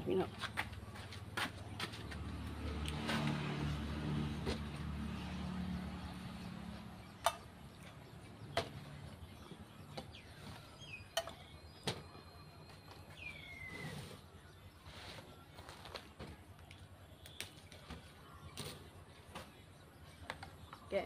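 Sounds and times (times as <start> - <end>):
passing vehicle engine hum: 0.1 - 10.8.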